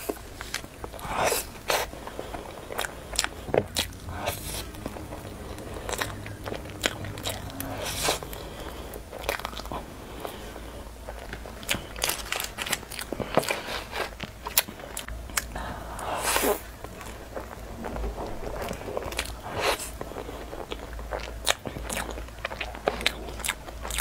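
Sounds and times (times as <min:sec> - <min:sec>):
rustling noise: 0:00.0 - 0:09.2, 0:09.8 - 0:14.9, 0:16.2 - 0:20.7.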